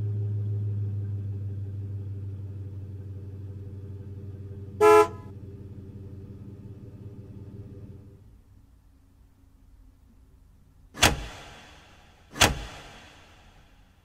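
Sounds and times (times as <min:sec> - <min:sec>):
car engine drone: 0:00.0 - 0:14.0
car horn honk: 0:04.8 - 0:05.3.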